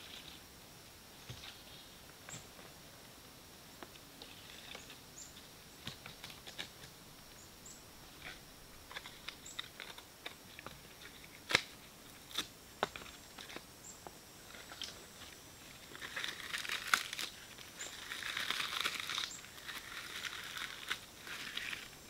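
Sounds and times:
twigs cracking and snapping: 5.8s - 7.0s, 8.2s - 13.6s, 14.5s - 22.0s.

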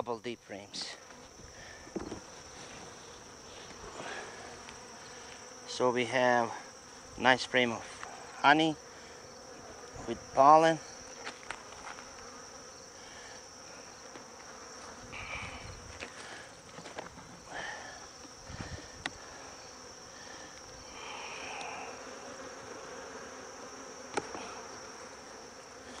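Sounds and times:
honeybees buzzing: 0.4s - 26.0s
wooden hive frames knocking: 1.8s - 2.3s.

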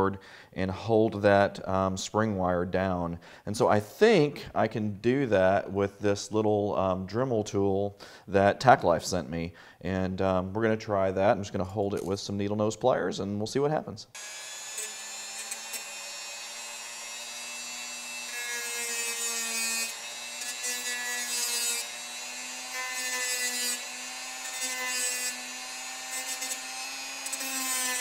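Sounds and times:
rotary tool whining: 14.2s - 28.0s.

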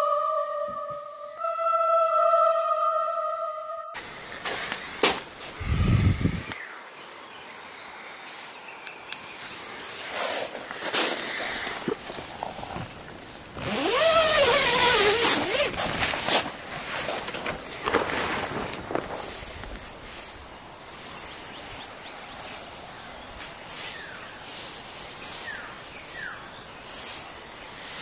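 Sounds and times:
drawn-out wavering pitched sound: 0.0s - 4.0s
rustling inside a tent: 9.4s - 21.3s.

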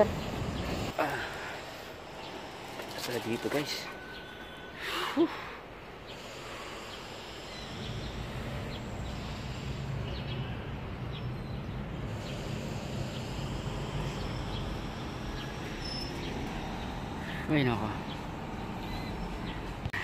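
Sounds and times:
high bird chirps: 6.9s - 19.7s.

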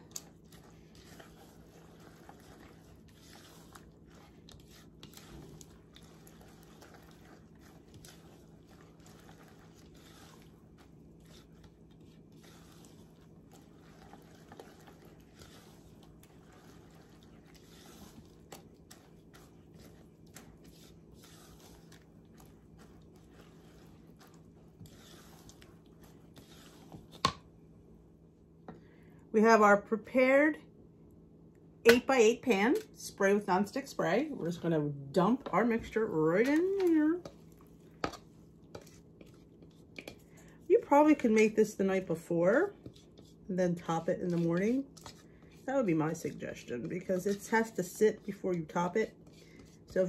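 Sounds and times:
spatula stirring wet batter: 0.0s - 27.6s, 31.9s - 50.0s
low steady hum: 0.0s - 50.0s.

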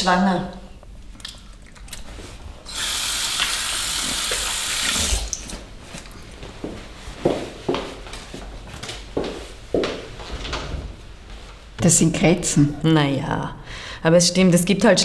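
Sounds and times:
tap water running: 2.7s - 5.6s.

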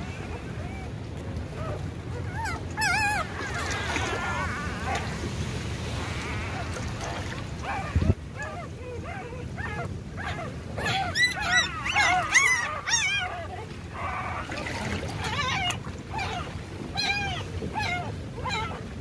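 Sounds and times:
puppies whimpering: 0.0s - 5.2s, 6.0s - 18.8s.

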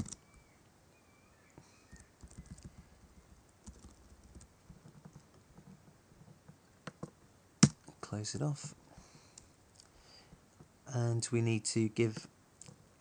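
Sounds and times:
faint keyboard typing: 0.0s - 0.2s, 1.6s - 7.1s.

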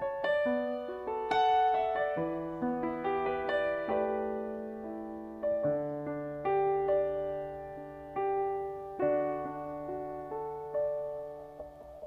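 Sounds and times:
slow solo piano: 0.0s - 12.0s.

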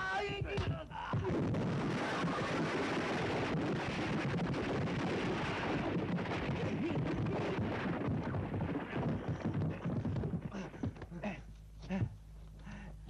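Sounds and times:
brick wall crashing: 1.2s - 11.0s.

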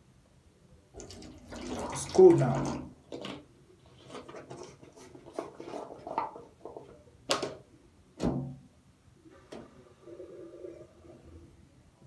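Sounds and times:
plastic bottle and mug scraping: 3.1s - 6.9s.

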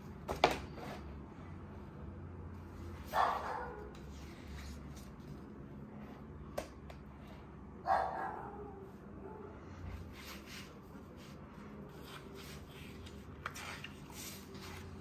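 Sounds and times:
low steady hum: 0.0s - 15.0s
dog barking: 3.1s - 3.9s, 7.8s - 9.6s.

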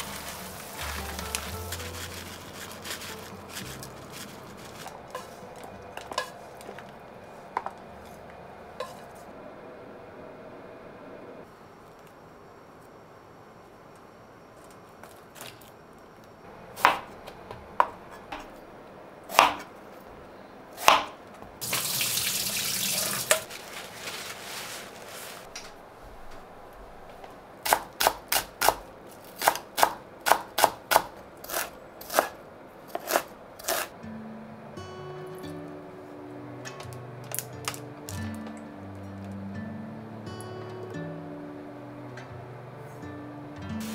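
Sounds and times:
knife chopping on cutting board: 19.4s - 19.7s
tap water running: 21.6s - 23.5s.

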